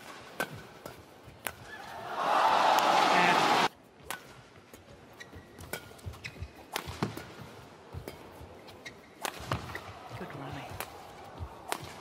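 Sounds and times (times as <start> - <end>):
racket striking shuttlecock: 0.0 - 1.7, 5.6 - 8.3, 9.1 - 12.0
shoes squeaking on court: 4.6 - 9.9.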